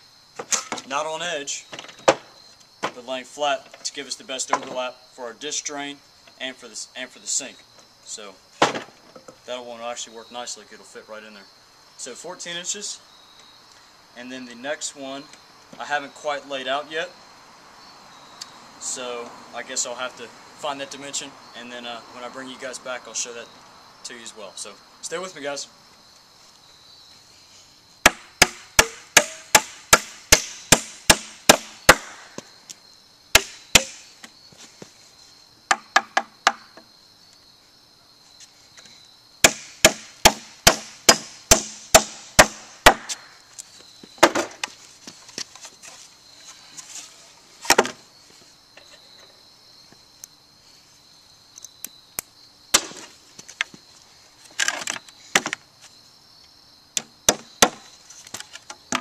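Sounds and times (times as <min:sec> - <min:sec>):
high insect drone: 0:00.0 - 0:59.0
hammer driving nails into wood: 0:28.1 - 0:32.2, 0:33.4 - 0:34.0.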